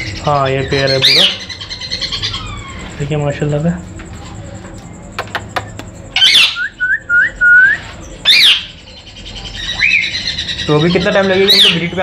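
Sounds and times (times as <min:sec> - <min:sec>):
parrots calling: 0:00.0 - 0:03.6, 0:05.1 - 0:12.0
steady whistle: 0:06.4 - 0:07.9.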